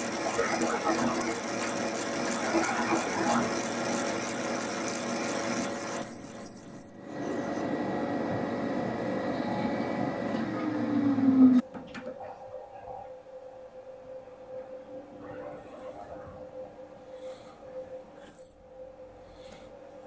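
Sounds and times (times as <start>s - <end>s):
drill cutting into metal: 0.0s - 6.9s
milling machine spindle running: 0.0s - 7.0s.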